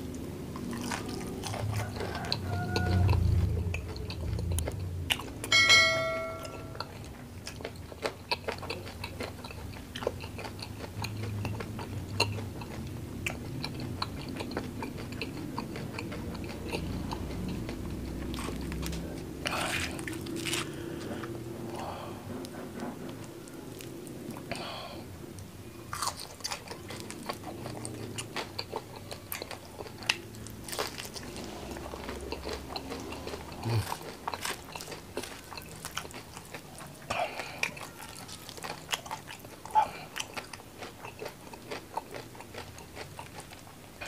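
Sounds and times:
crunchy chewing: 0:00.0 - 0:05.6, 0:06.5 - 0:44.0
brief ringing tone: 0:05.5 - 0:06.8.

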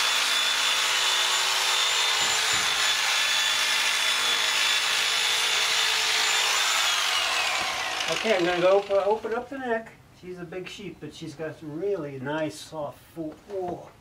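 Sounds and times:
electric shears motor whine: 0:00.0 - 0:09.2.

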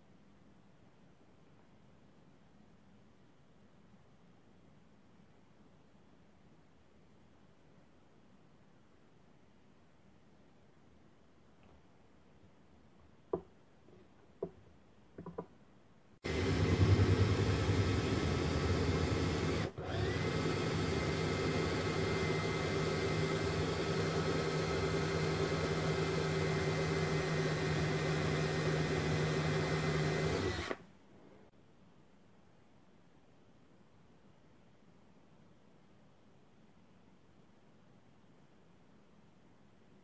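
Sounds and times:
cordless drill boring into metal: 0:16.3 - 0:30.8.

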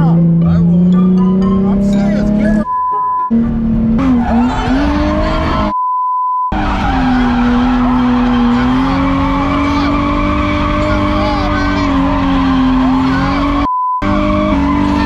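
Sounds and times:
censor beep: 0:02.6 - 0:03.4, 0:05.7 - 0:06.6, 0:13.6 - 0:14.0
car engine under load: 0:03.3 - 0:05.7, 0:06.6 - 0:15.0
tires squealing: 0:03.3 - 0:05.7, 0:06.5 - 0:15.0.

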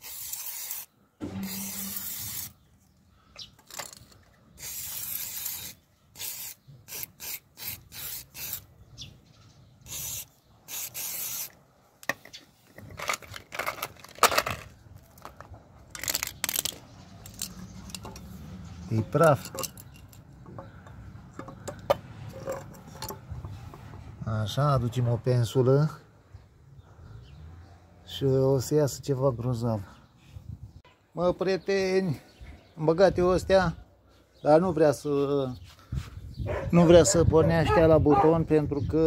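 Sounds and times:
aerosol spray can hissing: 0:00.0 - 0:02.6, 0:04.6 - 0:08.6, 0:09.9 - 0:11.5
metal tools clicking and knocking: 0:03.5 - 0:04.3, 0:12.0 - 0:18.3, 0:19.0 - 0:23.5.

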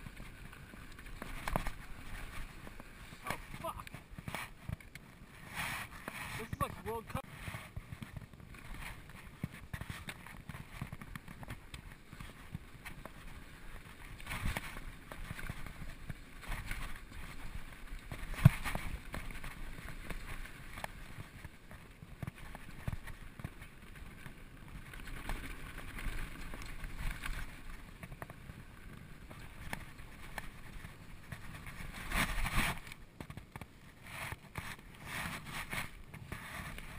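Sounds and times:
bike tyres on dirt: 0:00.0 - 0:36.9.

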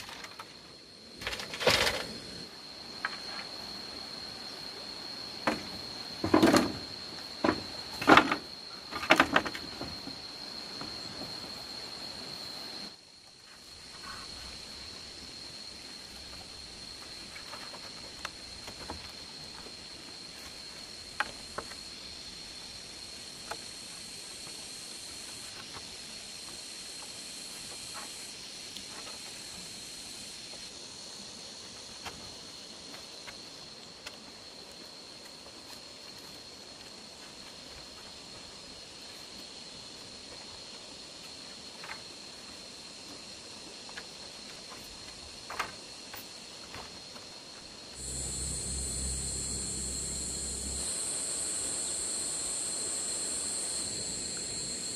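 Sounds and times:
high insect drone: 0:00.0 - 0:54.9
insect buzz: 0:00.0 - 0:54.9
hiss: 0:19.8 - 0:35.0, 0:47.4 - 0:54.9
faint clicks and taps of bamboo: 0:32.9 - 0:38.1, 0:43.8 - 0:47.3
high-pitched insect drone: 0:48.0 - 0:54.9
low rumble: 0:48.0 - 0:54.9.

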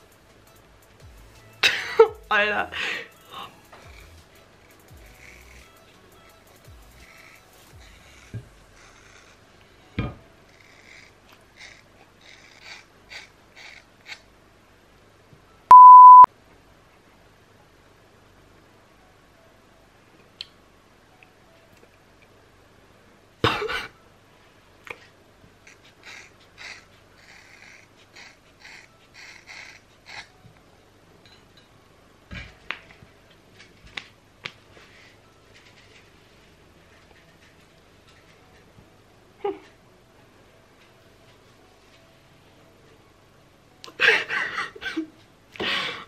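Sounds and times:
electronic censor beep: 0:15.7 - 0:16.3.

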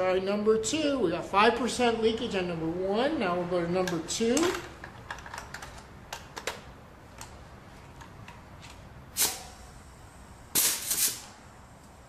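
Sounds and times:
compressed air hissing: 0:09.1 - 0:11.5.

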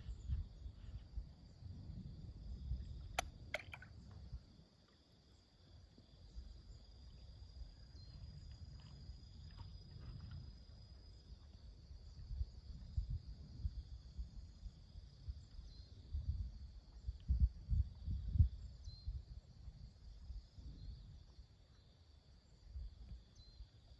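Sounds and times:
wind rumble on microphone: 0:00.0 - 0:04.8, 0:05.6 - 0:23.9
faint drone of insects: 0:00.0 - 0:23.9.

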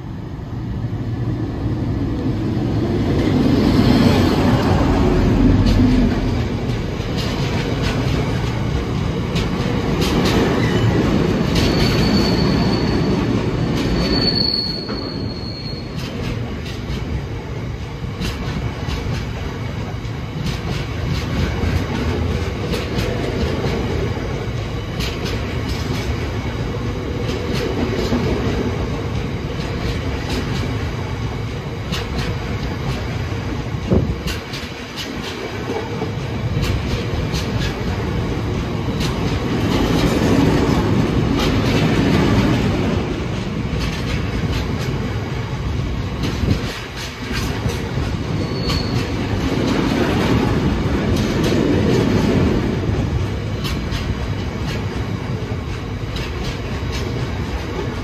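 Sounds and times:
train wheels rumbling over rails: 0:00.0 - 0:58.0
high wheel squeal: 0:11.6 - 0:16.1, 0:48.3 - 0:49.3.

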